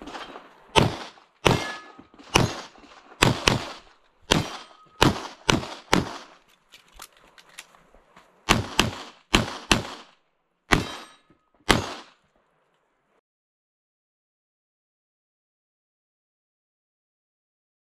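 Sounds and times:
pistol shots: 0.0s - 6.4s, 8.5s - 12.2s.

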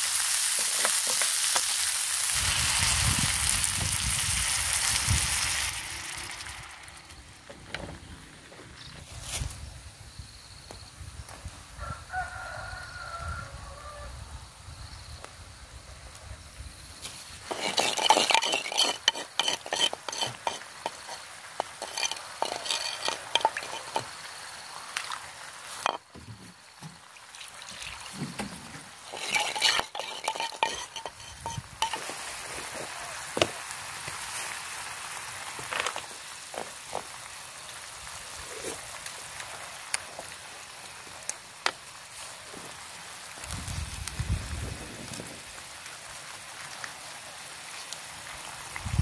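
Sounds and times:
shrimp sizzling in a pan: 0.0s - 7.4s, 16.8s - 28.1s, 28.9s - 49.0s
utensils clinking on a pan: 17.4s - 24.1s, 25.8s - 26.1s, 29.0s - 32.2s.

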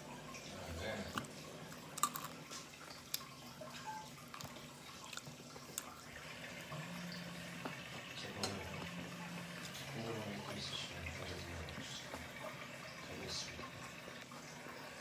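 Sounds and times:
wet chewing and lip-smacking: 1.2s - 6.0s.

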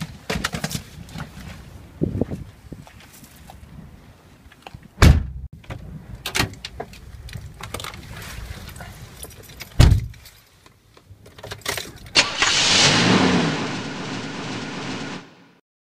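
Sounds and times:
steady rushing noise: 12.2s - 15.6s.

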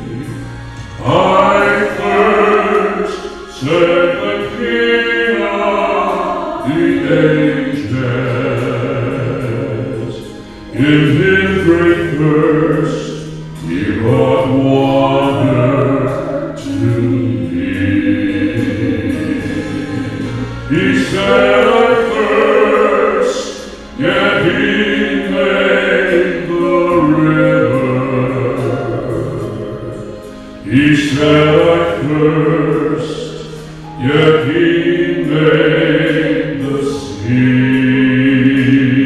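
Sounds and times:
man and woman singing duet: 0.0s - 39.0s.

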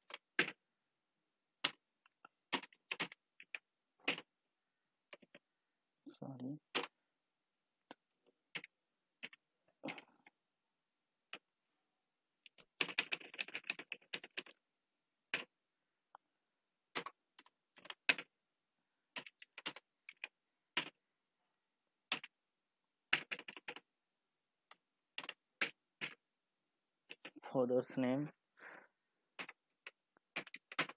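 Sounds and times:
computer keyboard typing: 0.0s - 0.6s, 1.6s - 4.3s, 5.1s - 5.4s, 6.7s - 6.9s, 7.9s - 10.1s, 12.4s - 14.6s, 16.9s - 18.3s, 19.1s - 21.0s, 22.1s - 22.4s, 23.1s - 23.8s, 24.7s - 26.2s, 27.1s - 27.4s, 29.4s - 30.9s.

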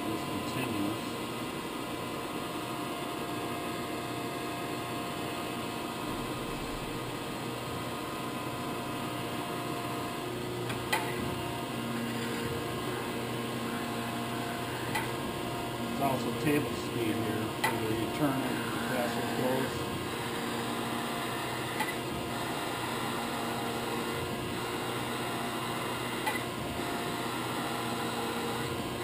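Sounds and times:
grinder motors humming: 0.0s - 29.0s
sharp click: 14.9s - 15.1s, 17.6s - 17.8s, 21.8s - 22.0s.

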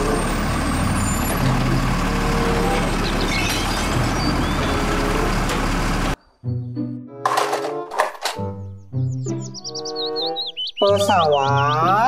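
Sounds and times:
diesel engine running: 0.0s - 6.2s
hydraulic arm lifting trash cart: 0.1s - 6.2s.

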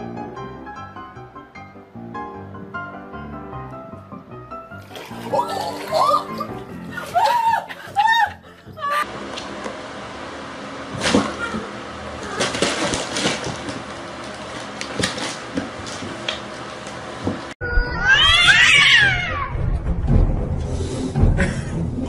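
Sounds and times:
cats yowling: 17.6s - 19.6s.

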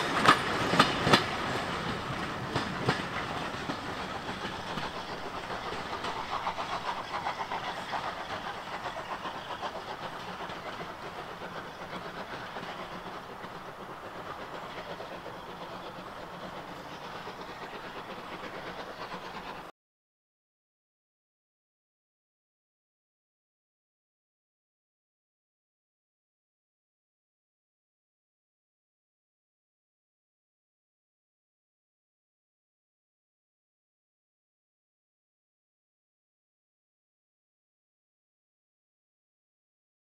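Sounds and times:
train hiss: 0.0s - 19.7s
train wheels clickety-clack: 0.0s - 19.7s.

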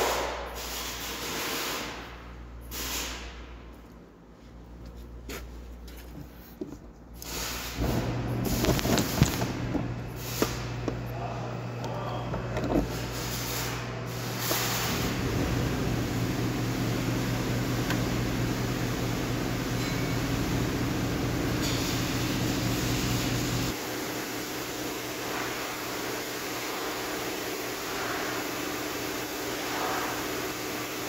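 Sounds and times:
machine hum: 7.8s - 24.0s.

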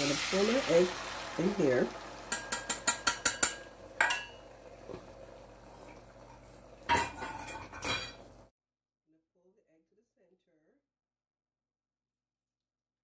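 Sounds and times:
whisk clinking against glass bowl: 2.3s - 4.4s.

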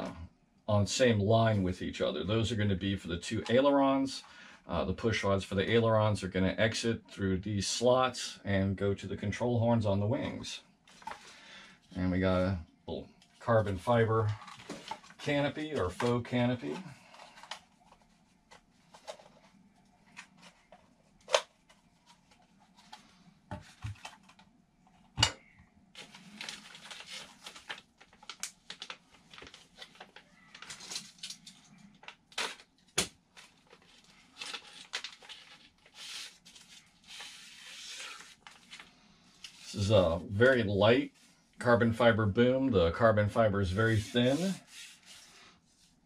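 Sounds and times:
plastic bags crinkling: 26.0s - 36.8s.

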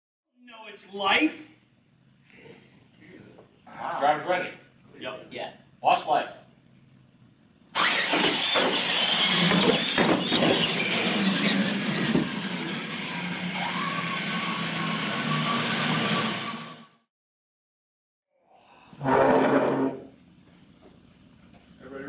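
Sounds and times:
toy truck motors whining: 7.7s - 17.0s.

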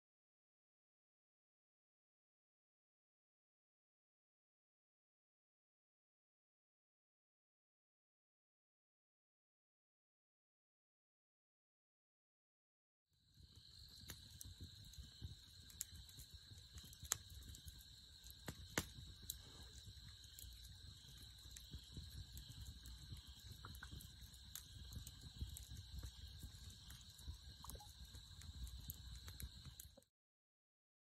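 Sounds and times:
campfire crackling: 13.3s - 30.0s
crickets chirring: 13.3s - 30.0s.

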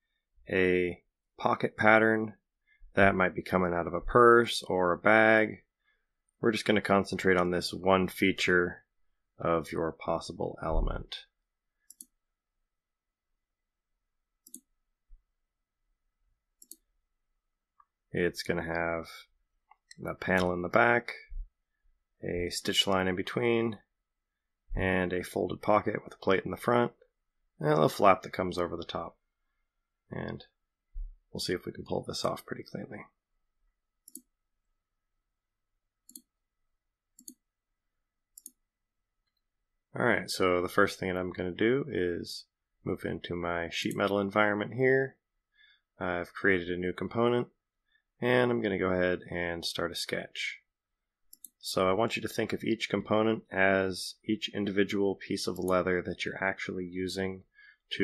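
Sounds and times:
computer mouse clicks: 11.8s - 12.2s, 14.4s - 14.7s, 16.6s - 16.9s, 34.0s - 34.3s, 36.0s - 36.3s, 37.2s - 37.4s, 38.4s - 38.6s, 51.3s - 51.6s.

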